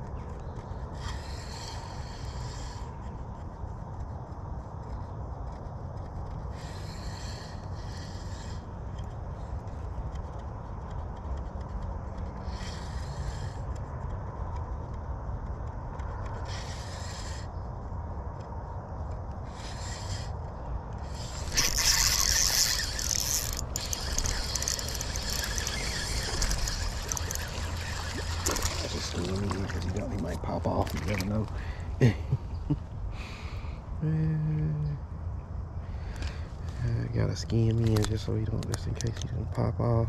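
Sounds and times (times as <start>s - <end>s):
fishing reel whirring: 12.4s - 13.5s, 21.0s - 31.4s.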